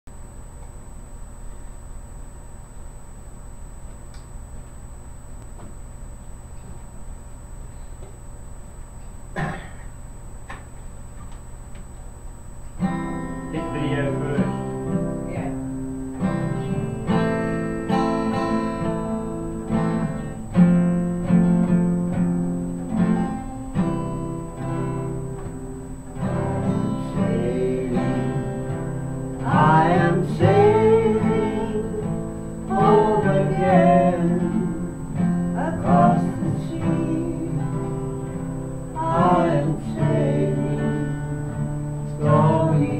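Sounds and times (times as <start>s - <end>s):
acoustic guitar strumming chords: 12.7s - 42.9s
person singing: 26.2s - 41.5s, 42.1s - 42.9s.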